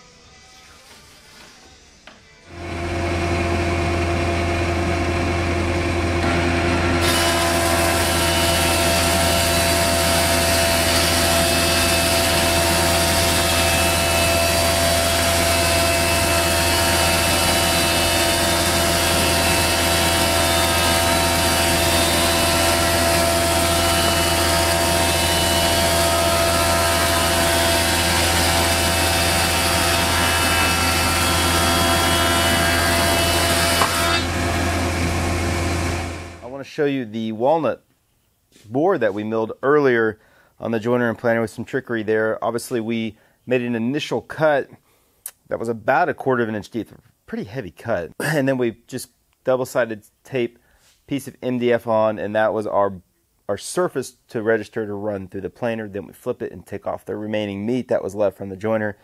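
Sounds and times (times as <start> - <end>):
thickness planer humming: 2.5 - 36.6.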